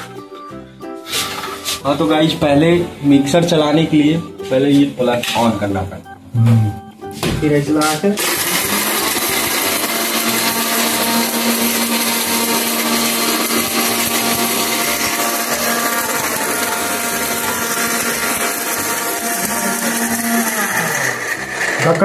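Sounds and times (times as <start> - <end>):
mixer grinder motor whine: 8.2 - 22.0.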